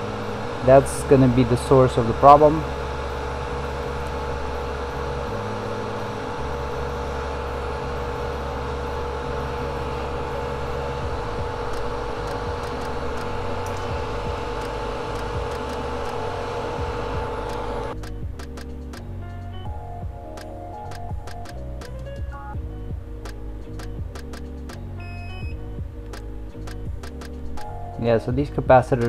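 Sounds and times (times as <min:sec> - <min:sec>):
hot air station blowing: 0:00.0 - 0:18.0.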